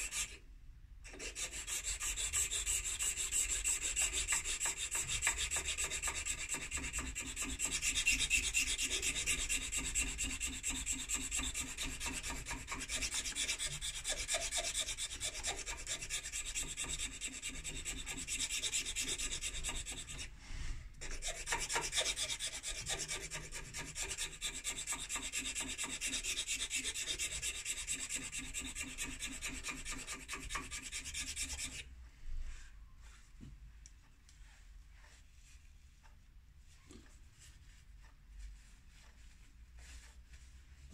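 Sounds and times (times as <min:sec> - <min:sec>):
hand file rasping on pipe stem: 0:00.0 - 0:00.4, 0:01.1 - 0:20.3, 0:21.0 - 0:31.9.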